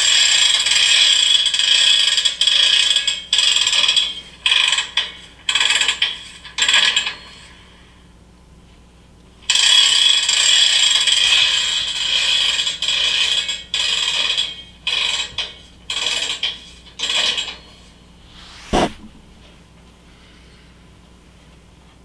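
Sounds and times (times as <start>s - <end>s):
ratcheting scraping mechanical noise: 9.5s - 19.1s.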